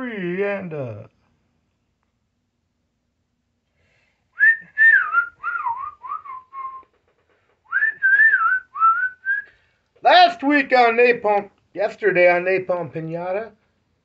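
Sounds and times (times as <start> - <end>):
person whistling a tune: 4.4 - 6.9, 7.7 - 9.5.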